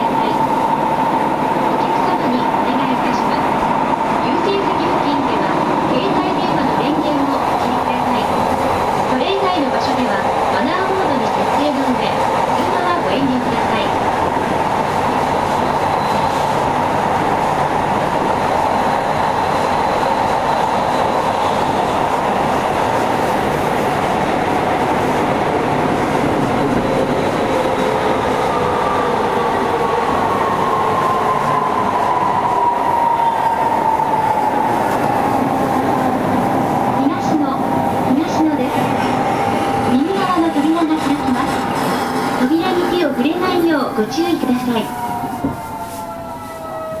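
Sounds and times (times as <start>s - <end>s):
train rumble and rail noise: 0.0s - 47.0s
train whine sliding down: 12.6s - 47.0s.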